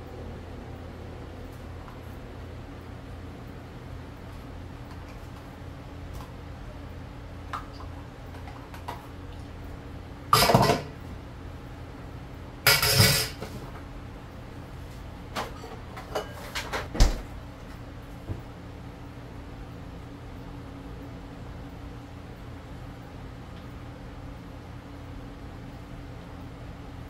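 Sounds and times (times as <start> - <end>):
steady low hum: 0.0 - 27.0
utensils clattering against dishes: 10.4 - 11.0, 12.7 - 13.6, 15.4 - 16.9.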